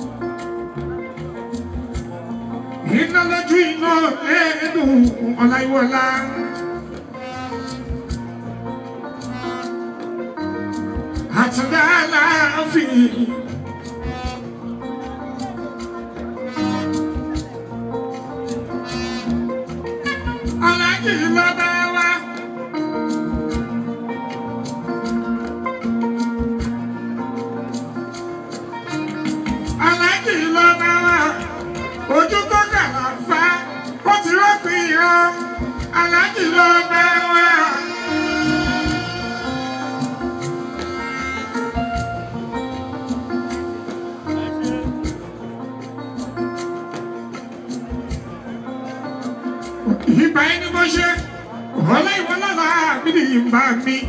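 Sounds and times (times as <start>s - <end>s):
electric guitar and bass groove: 0.0s - 54.0s
man singing into microphone: 2.8s - 6.8s, 11.3s - 13.4s, 20.6s - 22.7s, 29.8s - 40.2s
talking drum: 13.5s - 14.8s, 37.2s - 45.4s.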